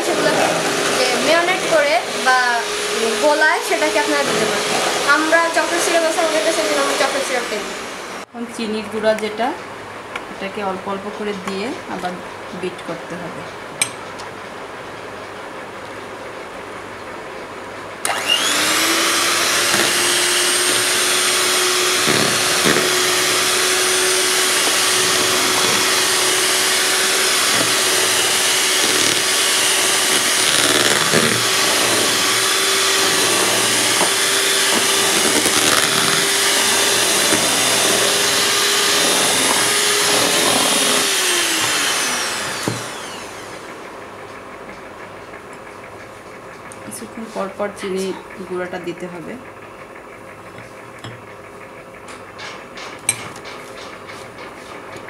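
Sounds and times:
electric hand mixer whining: 0:00.0 - 0:08.3, 0:18.0 - 0:44.0.

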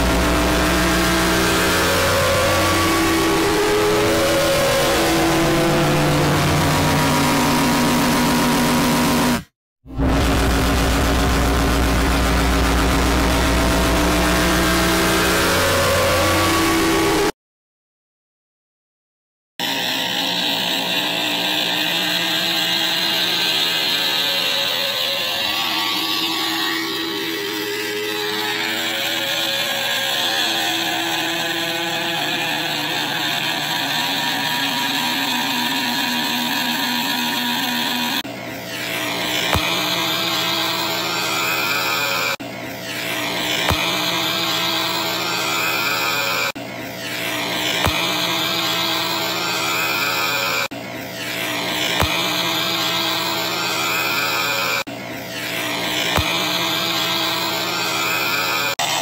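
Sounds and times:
thick noisy buzz: 0:00.0 - 0:17.3, 0:19.6 - 0:59.0
distorted cartoon voice: 0:19.6 - 0:59.0.

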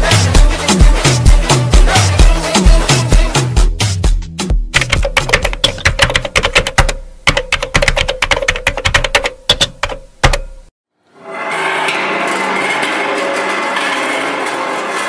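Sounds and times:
rapid sharp clicks: 0:04.8 - 0:10.6
held synth chord: 0:11.0 - 0:15.0.

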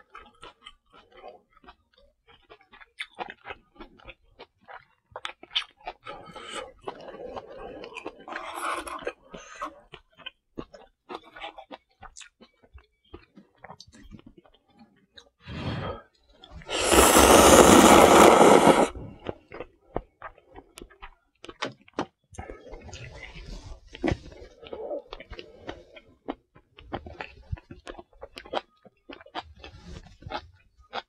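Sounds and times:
soft chewing: 0:00.0 - 0:18.3, 0:19.1 - 0:31.0
noodles slurped loudly: 0:16.7 - 0:19.3.

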